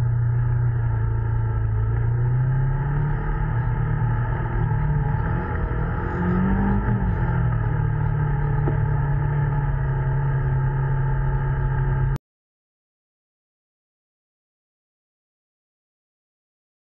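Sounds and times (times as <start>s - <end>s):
engine running: 0.0s - 12.2s.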